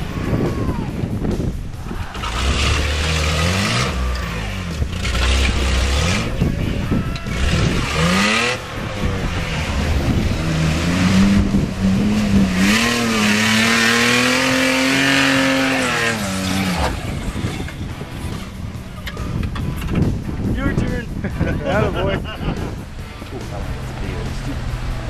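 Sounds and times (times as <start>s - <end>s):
car engine revving hard: 2.1s - 6.4s, 7.3s - 18.5s.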